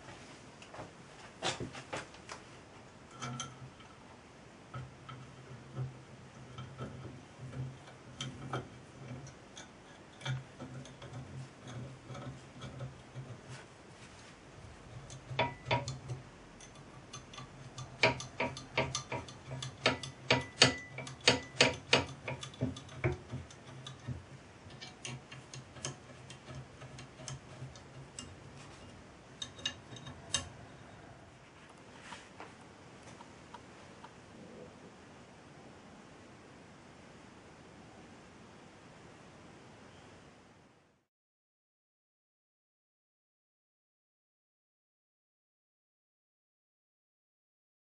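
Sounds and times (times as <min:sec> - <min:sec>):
small metallic clicks and taps: 0:15.0 - 0:30.5.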